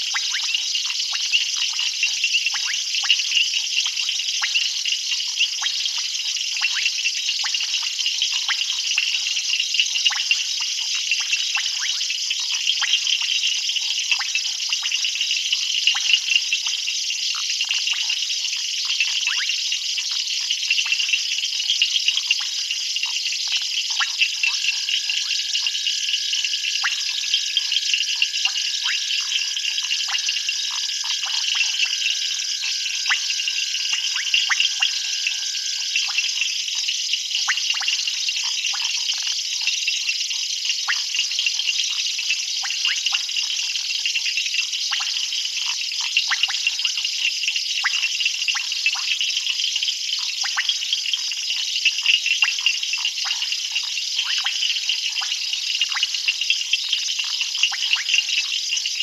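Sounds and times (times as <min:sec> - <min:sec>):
frogs and insects trilling: 0:00.0 - 0:59.0.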